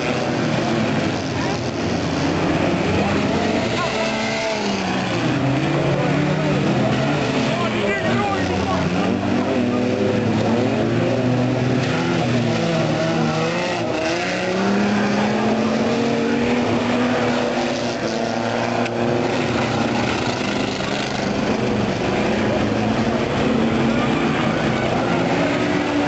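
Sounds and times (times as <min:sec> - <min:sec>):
racing car engines revving: 0:00.0 - 0:26.0.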